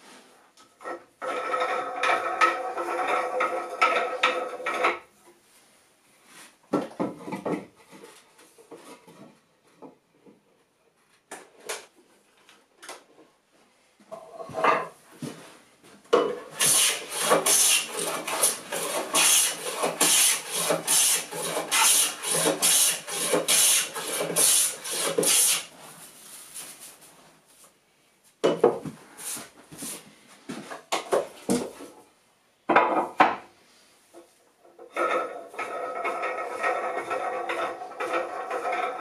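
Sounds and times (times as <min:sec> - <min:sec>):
hand plane rasping wood: 0:16.5 - 0:25.7, 0:35.6 - 0:39.0.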